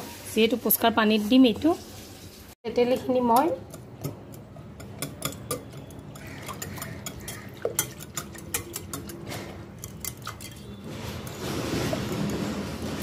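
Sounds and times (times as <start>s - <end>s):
whisk wires clinking against bowl: 2.8s - 12.4s.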